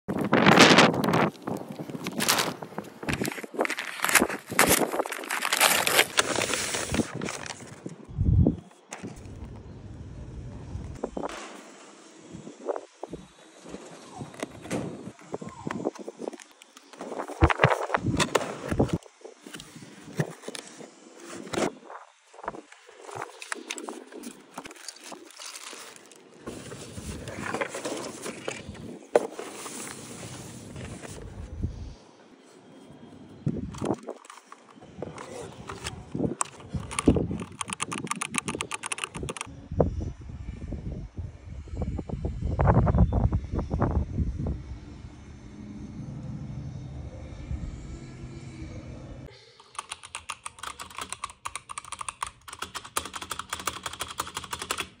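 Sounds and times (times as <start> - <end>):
packaging rustling and crinkling: 0.2 - 8.0, 22.9 - 31.4
mechanical keyboard typing: 36.4 - 39.5, 49.6 - 55.0
low rumble: 39.5 - 49.3.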